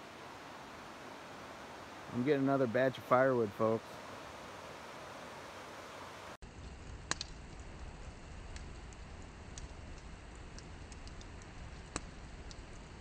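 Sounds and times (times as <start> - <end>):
campfire crackling and popping: 6.4 - 13.0.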